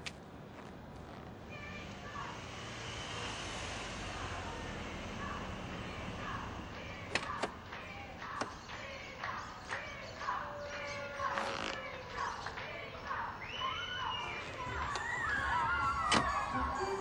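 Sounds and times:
low street rumble: 0:00.0 - 0:17.0.

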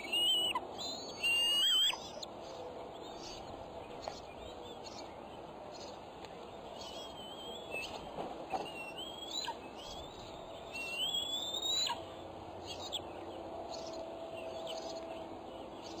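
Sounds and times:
eaglets whistling calls: 0:00.0 - 0:02.3, 0:06.8 - 0:12.0.

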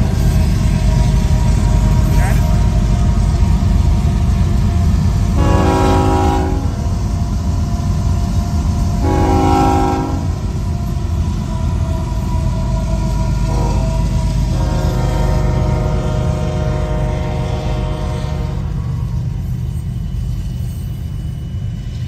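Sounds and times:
locomotive horn blasts: 0:05.3 - 0:06.8, 0:09.0 - 0:10.4, 0:13.4 - 0:18.7.

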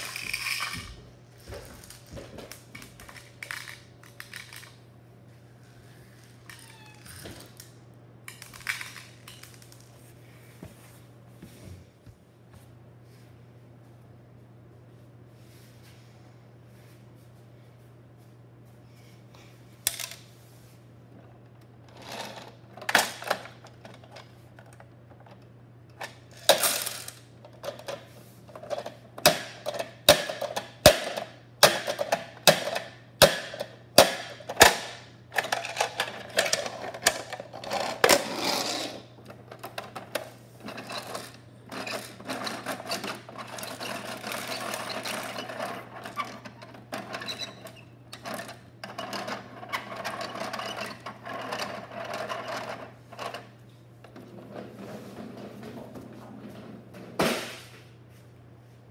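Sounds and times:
plastic rattle: 0:00.0 - 0:00.9, 0:03.0 - 0:04.8
plastic toy truck clicks and knocks: 0:28.6 - 0:38.3.

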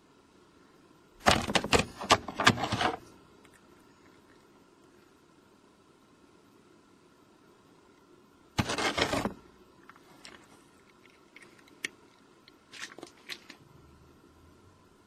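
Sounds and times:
small clicks and scratches: 0:01.2 - 0:05.0, 0:08.0 - 0:13.6
cat scraping cardboard box: 0:01.3 - 0:03.1, 0:08.6 - 0:09.4.

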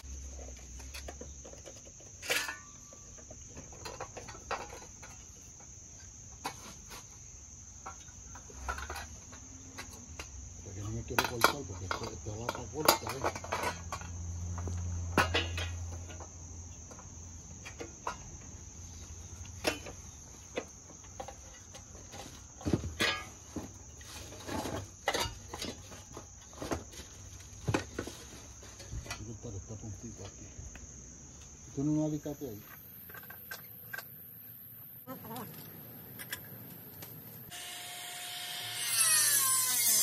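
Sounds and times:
hand tools clinking on metal: 0:00.8 - 0:05.5, 0:07.8 - 0:16.3, 0:19.4 - 0:26.8
high-pitched insect drone: 0:37.5 - 0:40.0.

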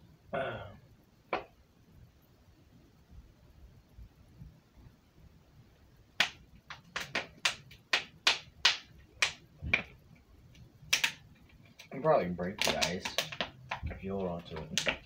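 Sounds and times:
frozen plastic bottle crackling: 0:12.4 - 0:15.0.

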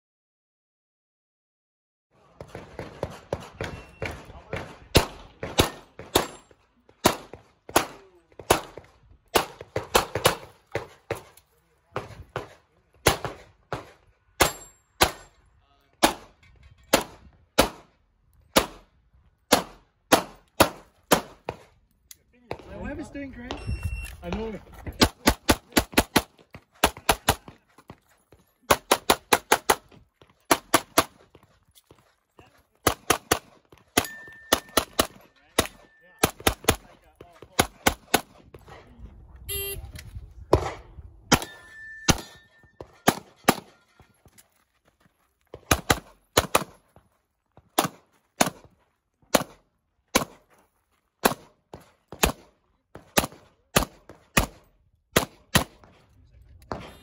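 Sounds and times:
pistol shots: 0:02.4 - 0:11.4, 0:12.0 - 0:15.3, 0:16.0 - 0:16.3, 0:16.9 - 0:17.9, 0:18.5 - 0:18.9, 0:19.5 - 0:21.7, 0:25.0 - 0:27.5, 0:28.7 - 0:29.9, 0:30.5 - 0:31.2, 0:32.8 - 0:38.6, 0:40.5 - 0:43.7, 0:45.6 - 0:46.8, 0:47.7 - 0:48.7, 0:49.3 - 0:50.4, 0:51.2 - 0:56.0.

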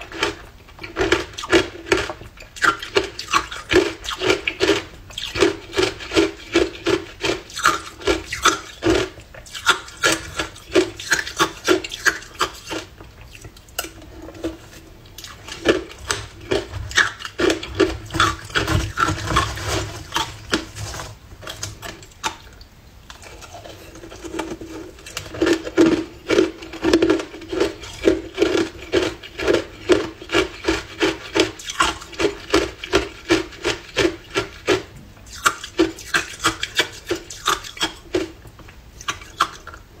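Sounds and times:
metal spoon scraping ice: 0:15.5 - 0:22.0, 0:23.2 - 0:37.9.

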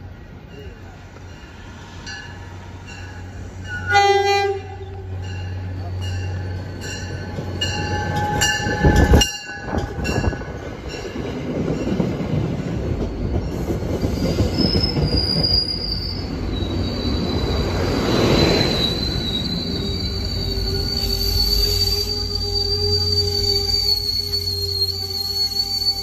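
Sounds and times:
train coaches rumbling: 0:00.0 - 0:26.0
train rushing past: 0:00.2 - 0:26.0
train horn blast: 0:03.7 - 0:05.2
metallic squeal: 0:14.1 - 0:26.0.

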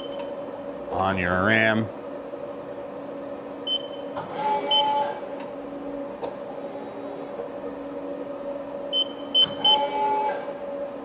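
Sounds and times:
machine hum: 0:00.0 - 0:11.0
short machine whines: 0:03.6 - 0:05.3, 0:08.9 - 0:10.6.

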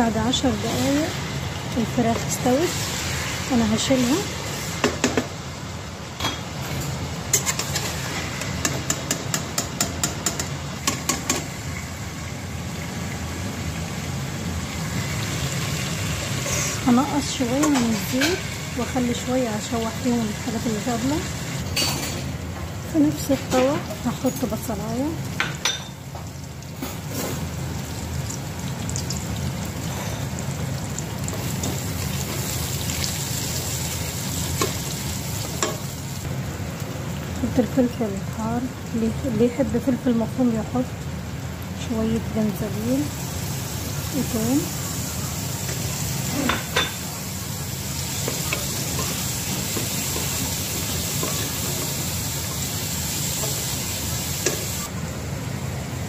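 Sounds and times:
oil sizzling: 0:00.0 - 0:56.0
metal spoon tapping a pot: 0:08.6 - 0:11.4.

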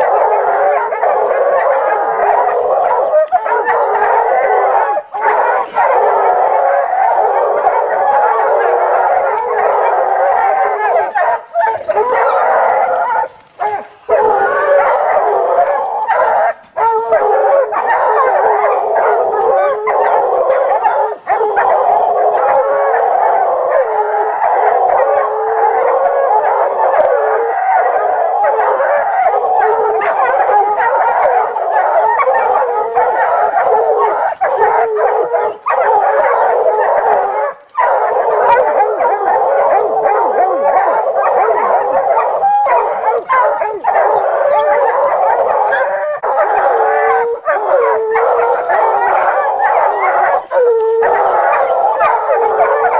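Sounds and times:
hound baying: 0:00.0 - 0:52.9.

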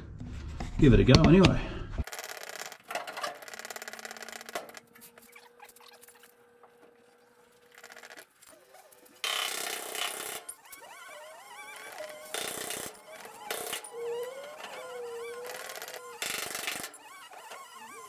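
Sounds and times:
hydraulic jack rapid clicking: 0:09.2 - 0:10.8, 0:11.7 - 0:18.0.

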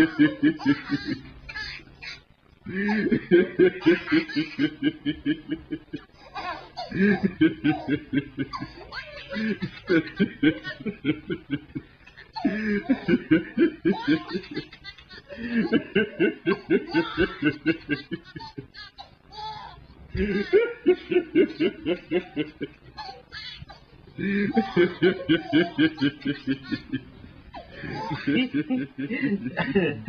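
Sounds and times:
man laughing hard: 0:00.0 - 0:01.3, 0:02.7 - 0:06.0, 0:06.9 - 0:08.7, 0:09.3 - 0:18.7, 0:20.2 - 0:22.7, 0:24.2 - 0:27.0, 0:27.6 - 0:30.0.

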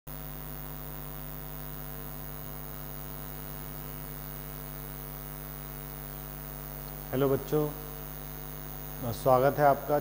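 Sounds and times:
electrical mains hum: 0:00.1 - 0:10.0.

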